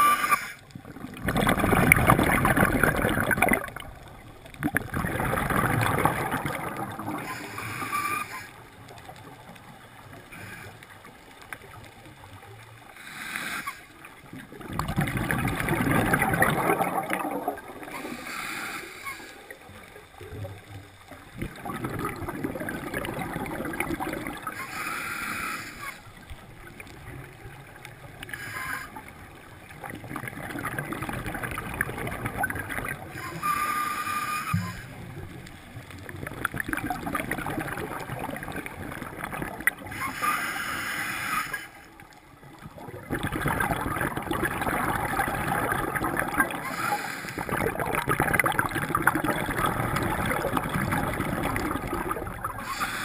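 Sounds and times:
exhaled bubbles gurgling: 0:00.0 - 0:53.0
regulator hissing inhalations: 0:13.0 - 0:13.8, 0:18.0 - 0:19.4, 0:24.6 - 0:26.0, 0:40.0 - 0:41.8, 0:46.6 - 0:47.5, 0:52.6 - 0:53.0.

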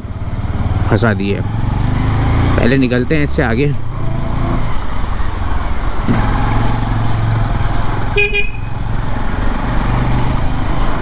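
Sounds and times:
motorcycle engine running: 0:00.0 - 0:03.2, 0:03.8 - 0:11.0
short horn beep: 0:08.2 - 0:08.7.

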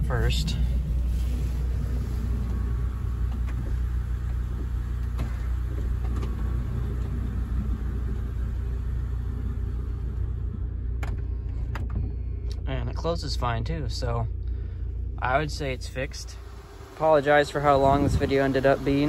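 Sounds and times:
car engine idling: 0:00.0 - 0:19.0
sliding door opening and closing: 0:01.0 - 0:10.0.

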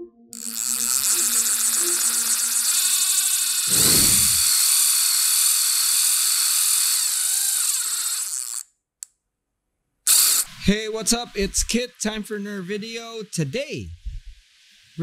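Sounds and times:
high whirring hiss: 0:01.2 - 0:04.8.

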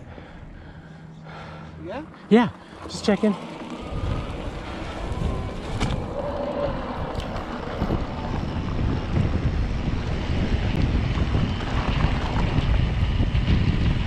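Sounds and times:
tyres rumbling over dirt trail: 0:00.0 - 0:14.0
wind buffeting microphone: 0:00.0 - 0:14.0.

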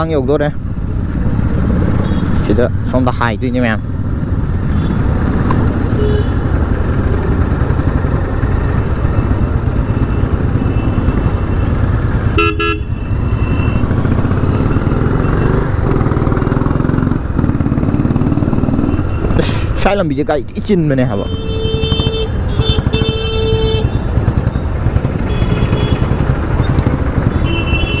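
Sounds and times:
motorcycle engine rumble: 0:00.0 - 0:28.0
road noise: 0:00.0 - 0:28.0
vehicle horn toot: 0:05.9 - 0:06.4, 0:12.4 - 0:13.8, 0:21.2 - 0:24.0, 0:25.3 - 0:26.2, 0:27.4 - 0:28.0.

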